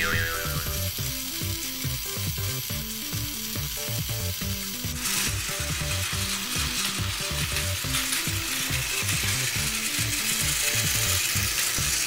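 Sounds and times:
background music with bass: 0.0 - 4.6
toy train motor whir: 0.0 - 12.0.

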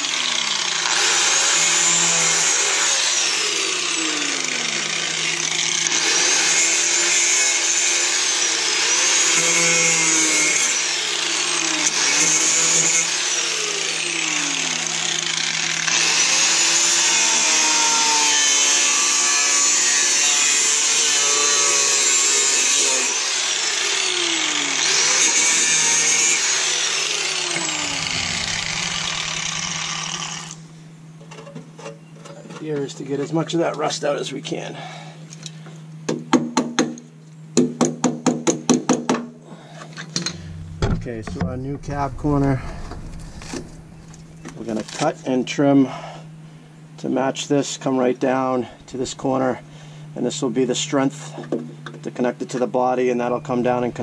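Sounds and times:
angle grinder cutting metal: 0.0 - 30.8.

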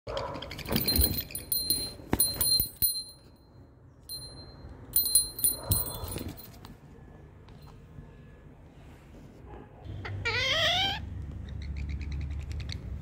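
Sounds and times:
small bell jingling: 0.7 - 3.4, 4.1 - 6.6.

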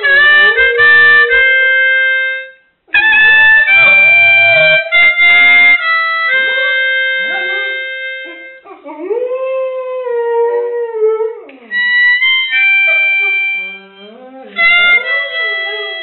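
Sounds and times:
held instrument chords: 0.0 - 8.7, 11.7 - 16.0
dog howling: 3.3 - 5.0, 6.5 - 11.8.

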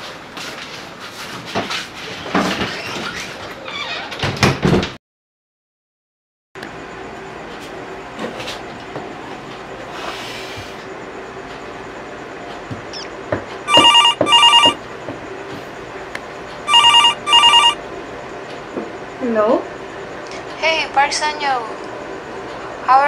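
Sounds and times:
mobile phone double ring: 13.7 - 14.8, 16.7 - 17.8.

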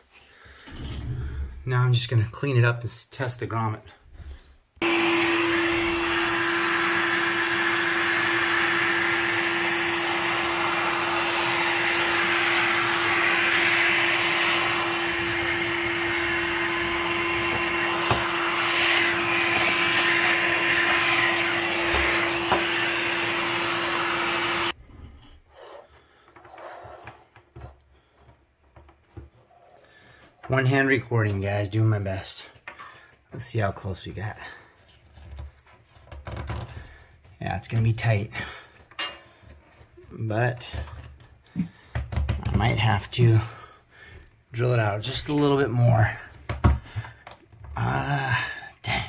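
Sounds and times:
vacuum cleaner running: 4.8 - 24.8.

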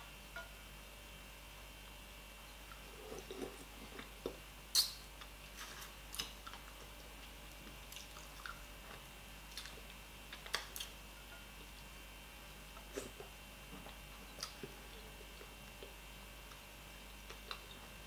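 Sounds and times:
person chewing with mouth smacks: 2.7 - 11.0, 12.8 - 16.6, 17.2 - 17.8.

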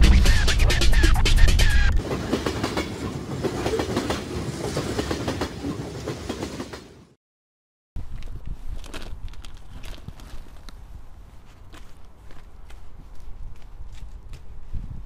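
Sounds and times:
music: 0.0 - 2.0.

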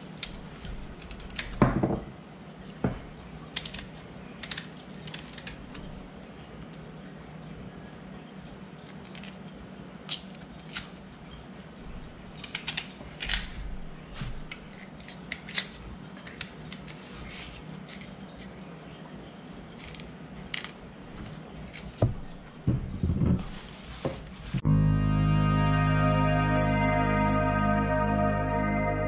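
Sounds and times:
steady low hum: 24.6 - 29.0.

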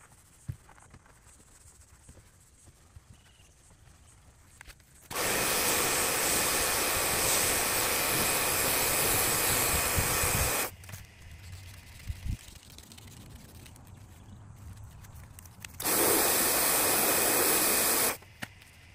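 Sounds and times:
pressure washer spraying water: 5.1 - 10.7, 15.8 - 18.2.

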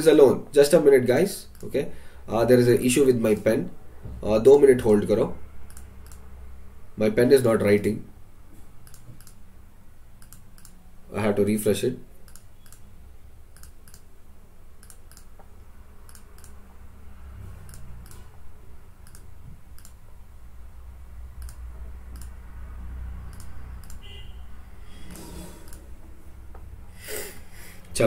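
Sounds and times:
sharp computer clicks: 1.4 - 1.8, 5.6 - 6.3, 8.8 - 9.4, 10.2 - 10.8, 12.2 - 12.9, 13.5 - 14.1, 14.7 - 16.6, 17.6 - 18.4, 19.0 - 20.0, 21.4 - 22.4, 23.2 - 24.1, 25.7 - 25.9.

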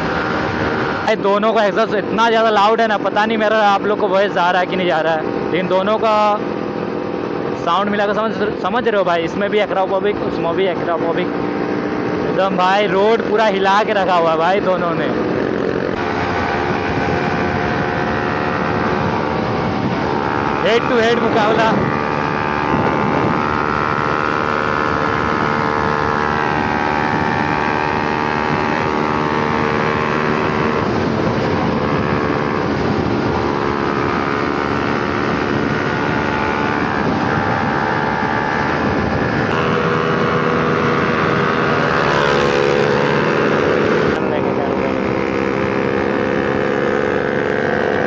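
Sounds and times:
motorcycle engines at high speed: 0.0 - 48.0
wind rush: 6.4 - 48.0.

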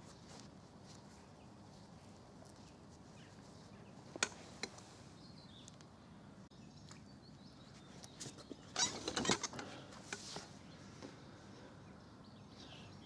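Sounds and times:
faint bird chirp: 10.4 - 13.0.

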